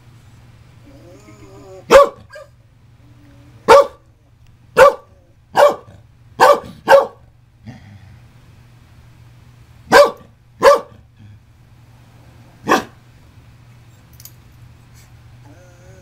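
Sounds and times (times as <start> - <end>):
dog barking: 1.9 - 2.5, 3.7 - 4.1, 4.8 - 7.3, 9.9 - 11.0, 12.6 - 13.0.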